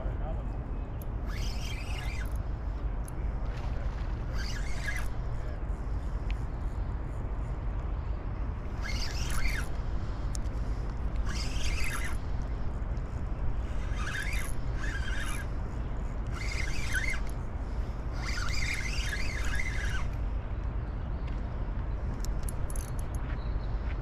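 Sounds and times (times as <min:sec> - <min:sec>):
spinning reel cranking: 0:01.1 - 0:02.4, 0:04.3 - 0:05.4, 0:08.7 - 0:09.8, 0:11.1 - 0:12.3, 0:13.6 - 0:15.6, 0:16.2 - 0:20.2.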